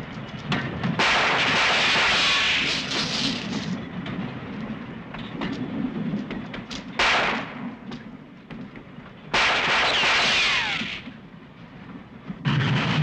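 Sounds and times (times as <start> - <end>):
loud gunfire blast: 1.0 - 2.8, 7.0 - 7.5, 9.3 - 11.0
sharp cracks: 1.0 - 3.8, 7.0 - 7.6, 9.3 - 11.1.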